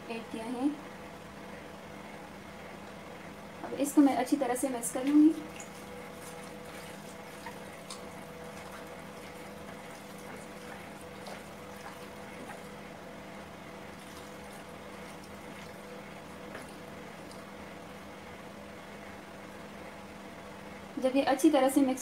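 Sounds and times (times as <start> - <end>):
low background hum: 0.0 - 22.0
wet squelching of raw meat: 5.0 - 12.8, 13.9 - 17.5.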